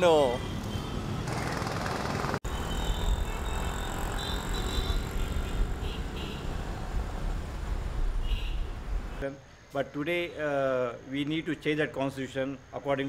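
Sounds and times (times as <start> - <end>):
city street traffic rumble: 0.0 - 9.3.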